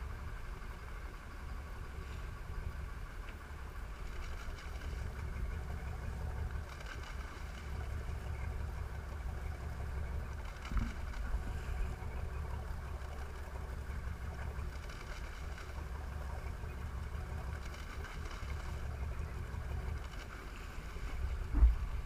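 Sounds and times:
boat engine running: 0:00.0 - 0:22.0
water wash: 0:03.5 - 0:22.0
wind on microphone: 0:21.1 - 0:22.0
brief thump: 0:21.5 - 0:21.9.

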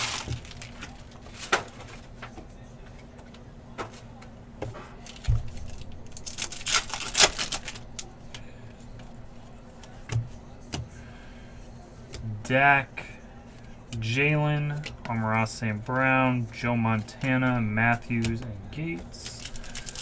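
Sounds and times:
plastic wrapper tearing: 0:00.0 - 0:01.5, 0:05.1 - 0:08.1, 0:19.3 - 0:20.0.

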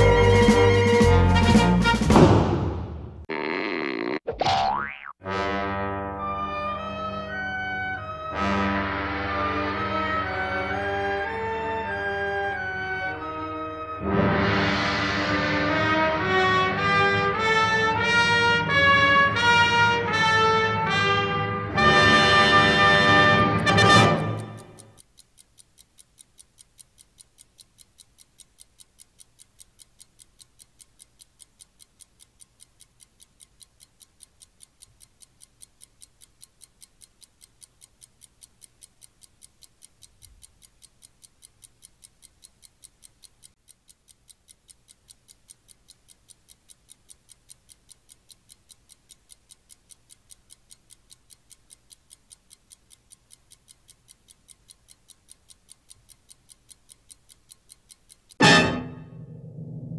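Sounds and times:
clock ticking: 0:14.7 - 0:59.9
low hum: 0:58.4 - 0:59.9.

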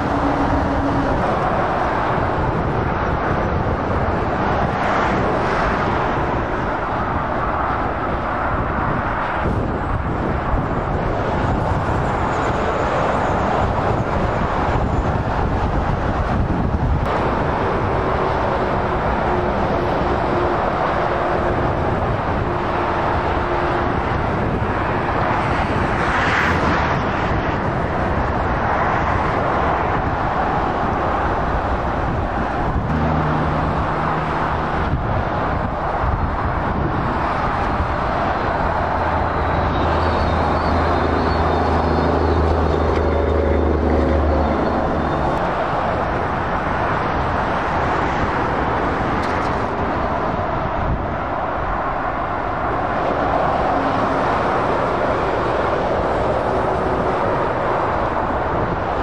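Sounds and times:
lorry diesel engines: 0:00.0 - 0:59.0
tyre noise on road: 0:00.0 - 0:59.0
vehicle passing loudly: 0:29.0 - 0:59.0.

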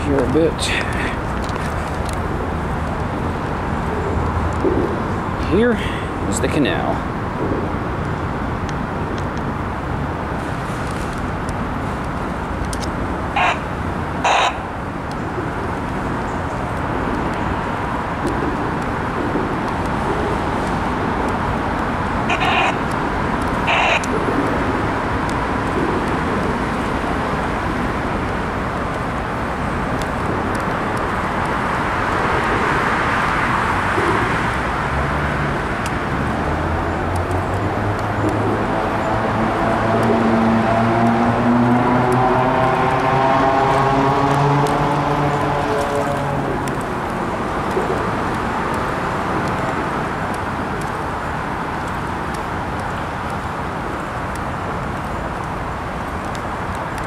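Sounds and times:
road traffic noise: 0:00.0 - 0:57.0
crow cawing: 0:13.4 - 0:14.6, 0:22.3 - 0:22.8.

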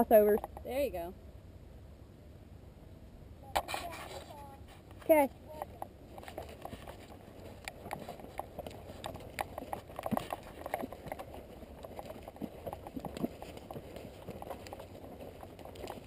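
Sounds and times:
horse hoofbeats on dirt: 0:04.7 - 0:16.0.

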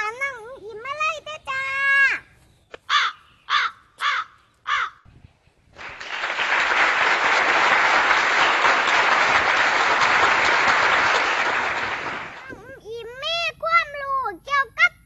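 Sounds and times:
crow cawing: 0:02.9 - 0:05.0
applause: 0:05.8 - 0:12.5.

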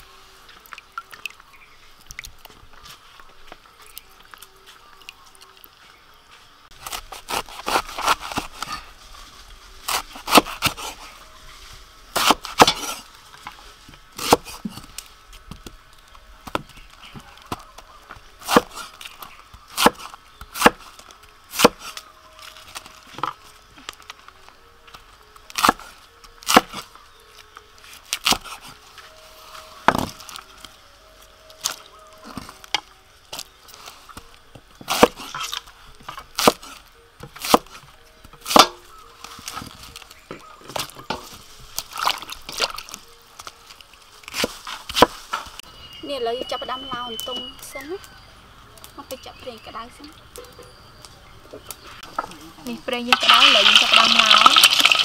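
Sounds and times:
cleaver chopping on wooden block: 0:19.8 - 0:20.8.

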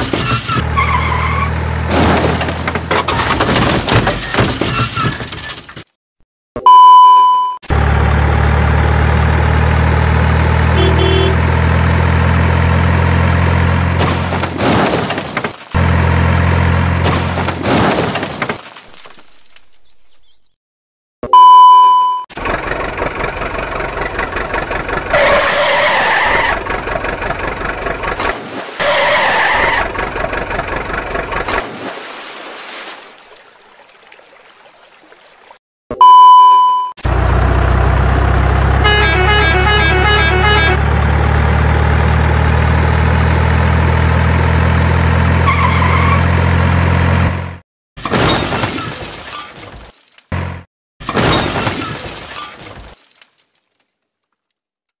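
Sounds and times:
truck engine: 0:00.0 - 0:05.9, 0:07.6 - 0:19.5, 0:22.3 - 0:31.7, 0:37.0 - 0:49.6, 0:50.3 - 0:52.8
sharp beep: 0:06.6 - 0:07.6, 0:10.8 - 0:11.4, 0:21.2 - 0:22.3, 0:36.0 - 0:37.0.

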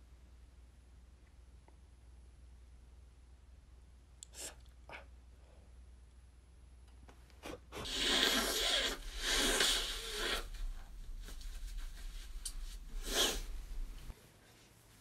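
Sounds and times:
person blowing nose: 0:07.4 - 0:14.0
tissue rubbing: 0:07.9 - 0:15.0.

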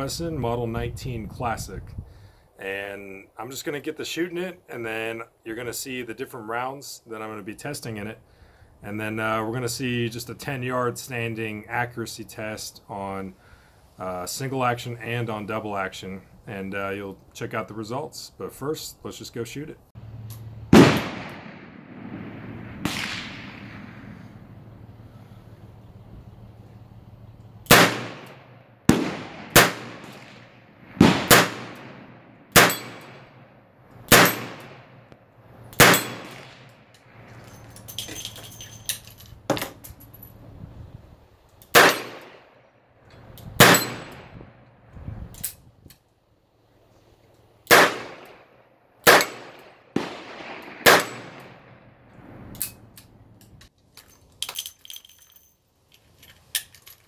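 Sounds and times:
revolver gunshots: 0:20.7 - 0:24.6, 0:27.7 - 0:33.5, 0:34.1 - 0:35.1, 0:35.8 - 0:36.8, 0:41.7 - 0:42.5, 0:43.6 - 0:44.4, 0:47.7 - 0:51.9
metallic clicks and clinks: 0:35.7 - 0:40.4, 0:52.5 - 0:57.0.

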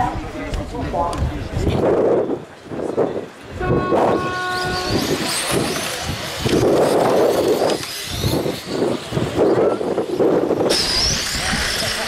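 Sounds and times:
steady rush of noise: 0:00.0 - 0:12.0
rc car motors whining: 0:04.5 - 0:12.0.

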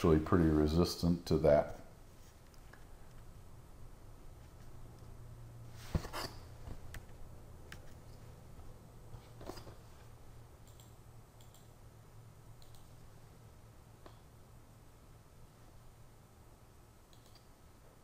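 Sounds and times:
low steady hum: 0:00.0 - 0:18.0
computer mouse clicking: 0:10.6 - 0:11.7, 0:12.6 - 0:13.0, 0:17.1 - 0:17.5.

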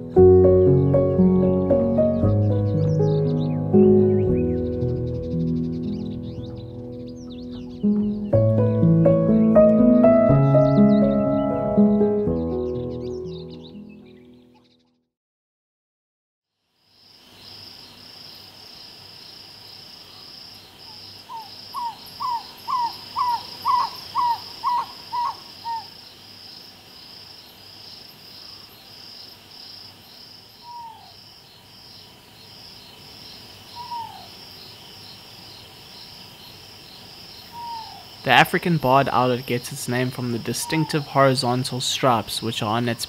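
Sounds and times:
insects chirring: 0:16.6 - 0:43.0
owl hooting: 0:21.3 - 0:26.0, 0:30.6 - 0:31.2, 0:33.7 - 0:34.4, 0:37.5 - 0:38.3, 0:40.1 - 0:41.6.

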